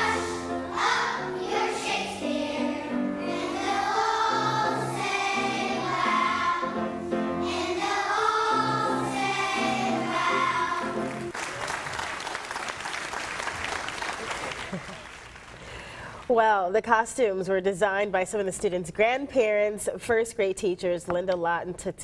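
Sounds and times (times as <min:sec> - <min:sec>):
children's choir singing: 0:00.0 - 0:11.3.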